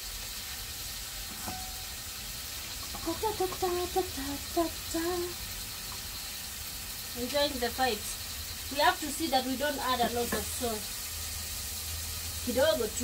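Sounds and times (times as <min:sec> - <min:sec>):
food sizzling in a pan: 0:00.0 - 0:13.0
light clink: 0:01.3 - 0:01.8
woman speaking: 0:03.0 - 0:05.4, 0:07.2 - 0:10.9, 0:12.4 - 0:13.0.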